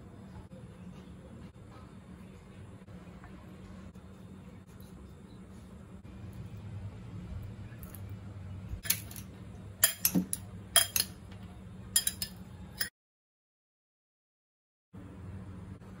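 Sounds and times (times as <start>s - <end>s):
steady low hum: 0.0s - 12.9s, 15.0s - 16.0s
metal spoon clinking on glass bowl: 9.8s - 11.2s, 12.0s - 12.9s.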